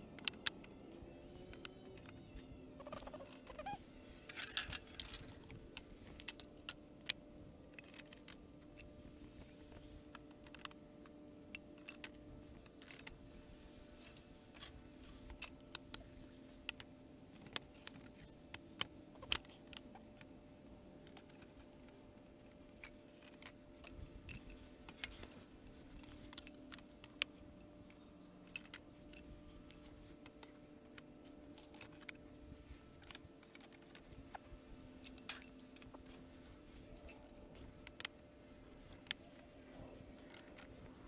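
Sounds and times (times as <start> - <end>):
faint steady hum: 0.0 - 41.0
plastic stakes and boards clicking: 20.9 - 40.9.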